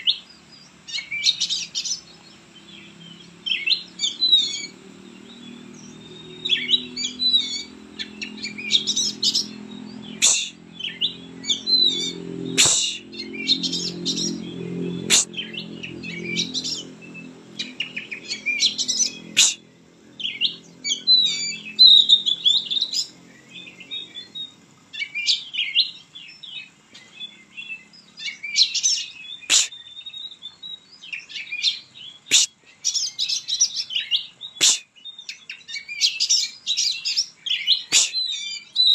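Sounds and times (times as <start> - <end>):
bird singing: 0.0 - 38.9
low hum: 2.0 - 24.3.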